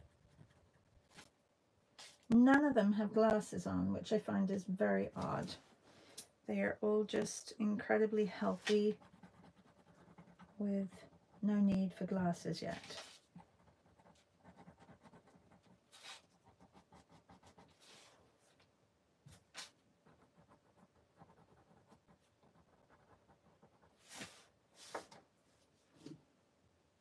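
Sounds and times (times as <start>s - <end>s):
paintbrush scratching on paper: 0.0s - 1.3s, 7.8s - 18.2s, 19.3s - 25.0s.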